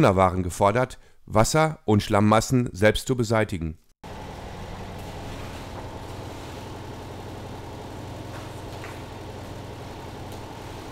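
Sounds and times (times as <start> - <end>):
motor humming: 4.0 - 10.9.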